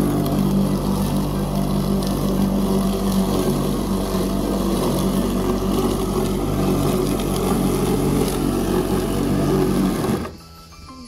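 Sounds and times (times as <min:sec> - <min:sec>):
machine motor humming: 0:00.0 - 0:10.4.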